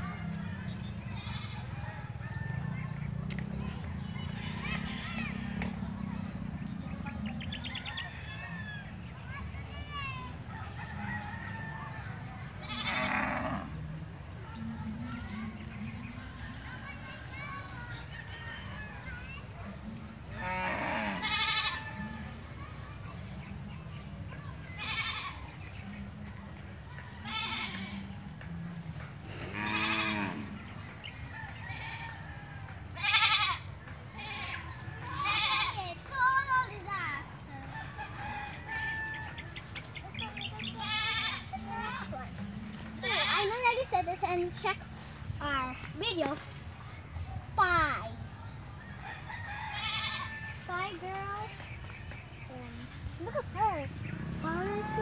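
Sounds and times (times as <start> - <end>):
farm animal call: 0.9 - 2.7, 4.2 - 6.0, 12.2 - 13.9, 20.2 - 22.6, 24.7 - 25.6, 27.1 - 28.2, 29.2 - 30.7, 31.5 - 35.9, 40.2 - 41.9, 49.3 - 50.7
goat bleating: 12.6 - 13.6, 20.4 - 22.1, 24.8 - 25.4, 27.2 - 28.0, 29.5 - 30.5, 33.0 - 35.8, 40.8 - 41.6, 49.7 - 50.3.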